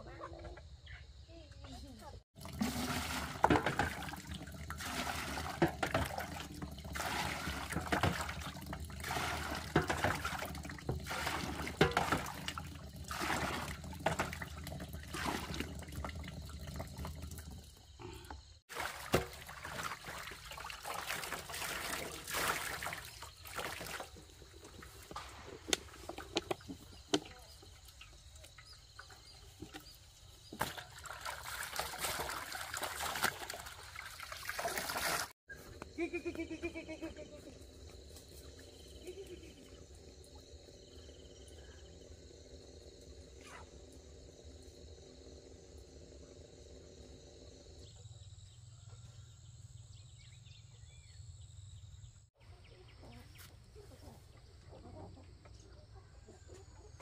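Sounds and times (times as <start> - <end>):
water running from a hose: 2.4 - 18.0, 18.7 - 35.4
water splashing and pouring: 2.4 - 18.0, 18.6 - 35.4.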